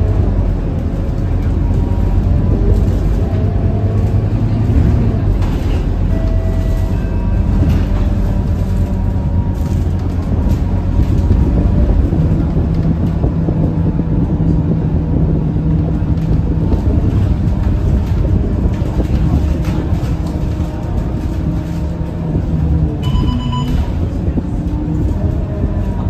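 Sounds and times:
bus diesel engine drone: 0:00.0 - 0:26.0
road and tyre noise: 0:00.0 - 0:26.0
short electronic beep: 0:23.0 - 0:23.9.

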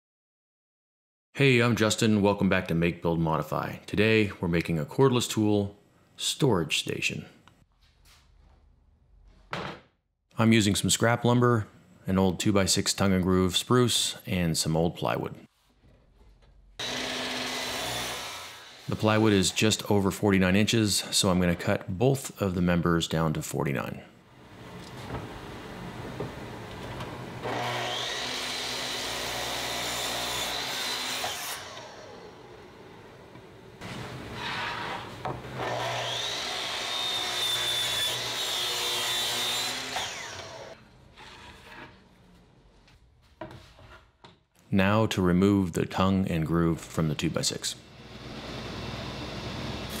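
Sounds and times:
miter saw whining: 0:16.8 - 0:19.8, 0:27.4 - 0:32.8, 0:34.3 - 0:40.8.

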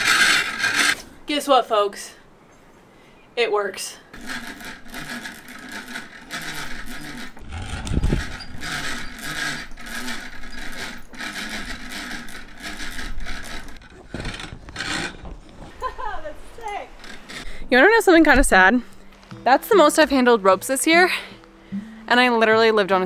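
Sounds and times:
rope rasping through pulley: 0:00.0 - 0:01.0, 0:04.1 - 0:19.0.

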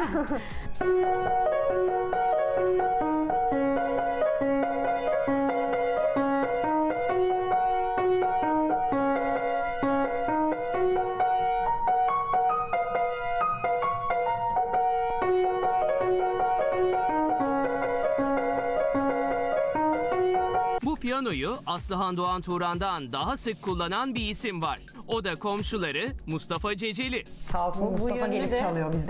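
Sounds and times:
grand piano melody: 0:00.0 - 0:21.7.

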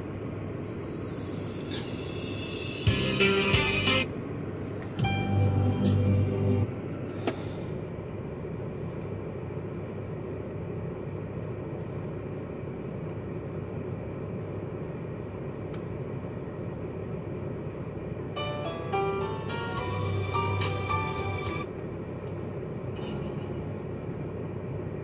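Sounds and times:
music from car stereo: 0:01.7 - 0:04.1, 0:05.0 - 0:06.7, 0:18.6 - 0:21.7.

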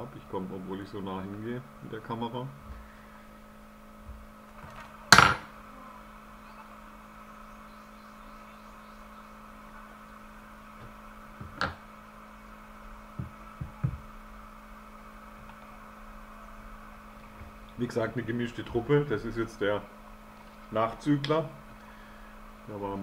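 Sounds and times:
electrical hum: 0:00.0 - 0:23.0
soft thumps: 0:13.1 - 0:14.1.

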